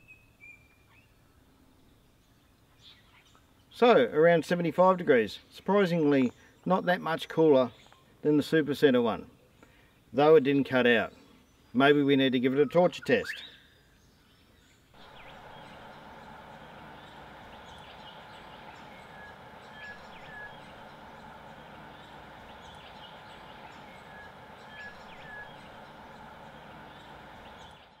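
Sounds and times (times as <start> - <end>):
bird chirps: 15.0 - 28.0
steady hissing: 15.0 - 28.0.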